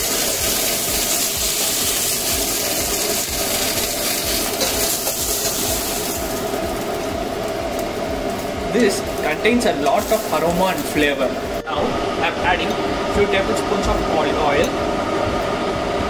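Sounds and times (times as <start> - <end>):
oil sizzling in a pot: 0.0 - 11.6.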